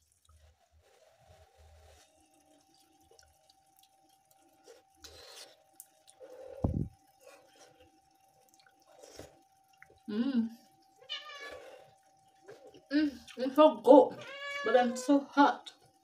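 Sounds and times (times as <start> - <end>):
faint steady hum: 0.0 - 16.0
chewing: 2.4 - 10.1, 10.7 - 13.4.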